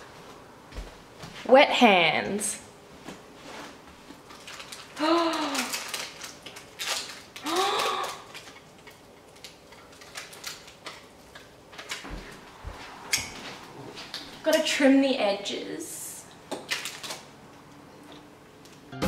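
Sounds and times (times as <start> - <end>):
sticky mixture clicking and crackling: 4.2 - 12.0, 16.4 - 18.8.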